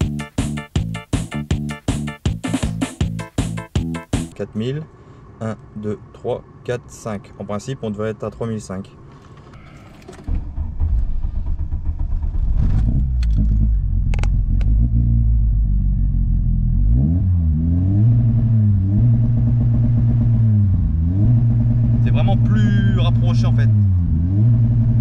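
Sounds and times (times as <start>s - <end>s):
car engine revving against limiter: 16.7s - 25.0s.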